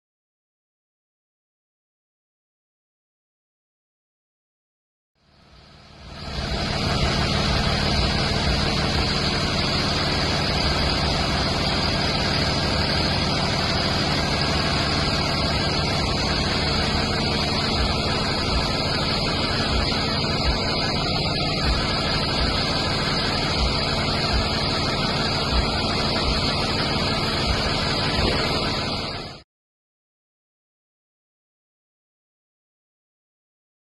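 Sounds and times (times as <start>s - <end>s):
bus engine idling: 5.2s - 29.4s.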